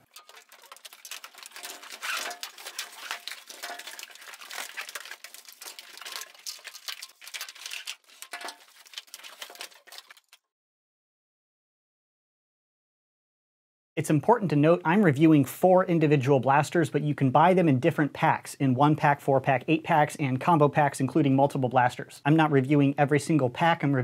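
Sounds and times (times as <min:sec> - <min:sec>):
packaging crinkling and tearing: 0:00.0 - 0:10.4
plastic parts clicking and knocking: 0:00.0 - 0:10.4.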